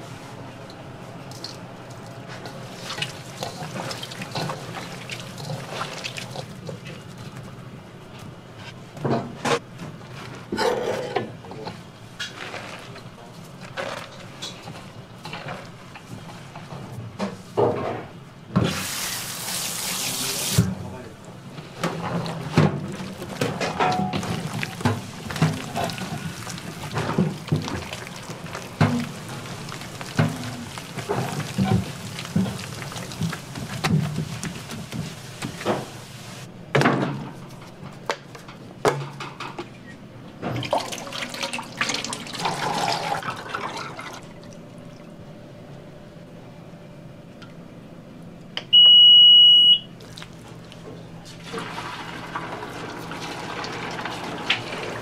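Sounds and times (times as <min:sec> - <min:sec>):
water running: 0:02.6 - 0:07.1, 0:22.0 - 0:36.5
utensils and cookware clattering: 0:21.9 - 0:36.0.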